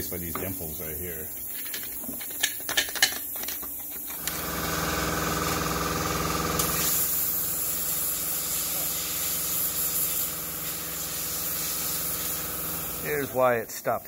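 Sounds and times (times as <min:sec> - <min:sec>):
plasma cutter buzzing: 0:04.2 - 0:13.5
high hiss of cutting arc: 0:06.5 - 0:13.8.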